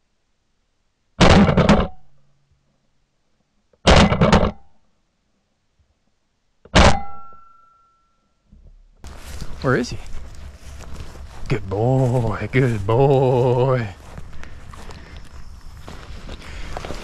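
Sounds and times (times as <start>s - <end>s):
shotgun shots: 3.9s - 4.6s, 6.8s - 7.2s.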